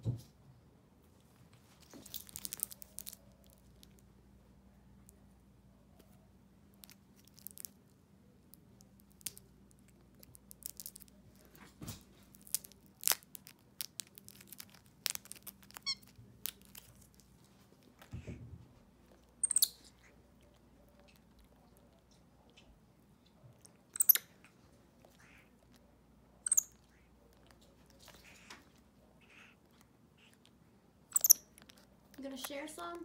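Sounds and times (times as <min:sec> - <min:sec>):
wrapper crinkling: 0:01.8 - 0:04.0, 0:10.1 - 0:17.9.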